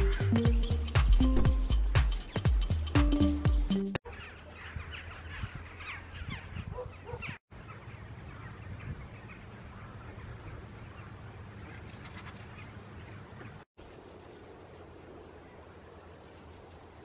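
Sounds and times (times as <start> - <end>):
quick bird calls: 4.0 - 14.3.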